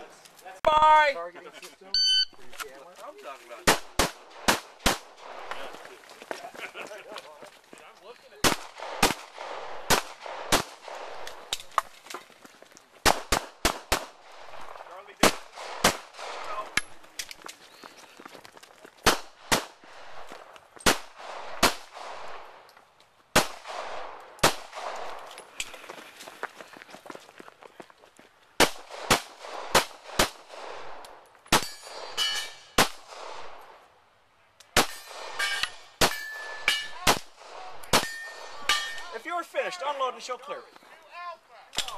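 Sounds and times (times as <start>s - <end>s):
pistol shots: 3.6s - 5.5s, 8.4s - 11.8s, 13.0s - 17.0s, 19.0s - 19.8s, 20.8s - 22.6s, 23.3s - 25.3s, 28.6s - 33.7s, 34.7s - 39.1s
steel targets ringing: 31.6s - 32.8s, 38.0s - 39.0s.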